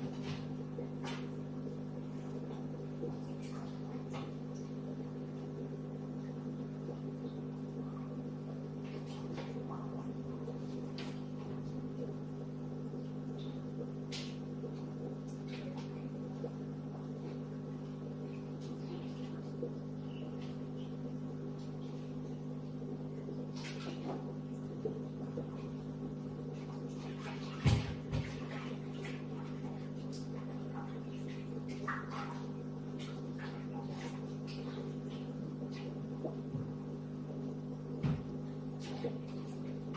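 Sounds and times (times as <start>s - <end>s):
aquarium air pump humming: 0.0s - 39.9s.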